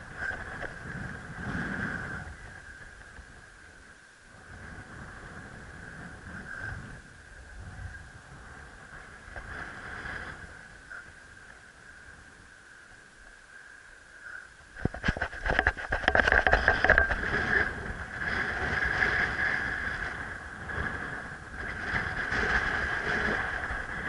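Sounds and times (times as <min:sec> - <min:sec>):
wind buffeting microphone: 0:00.0 - 0:13.2, 0:14.4 - 0:24.0.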